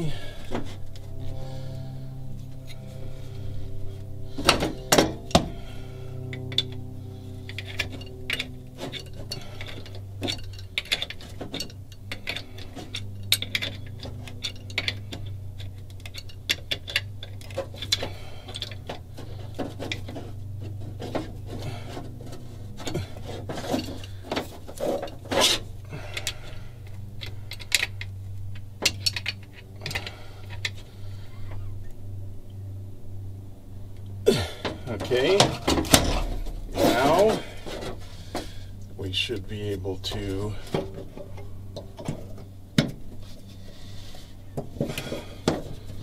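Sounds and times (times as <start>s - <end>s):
steady low hum: 0.0s - 46.0s
wrench clinking on metal nuts: 7.5s - 20.2s.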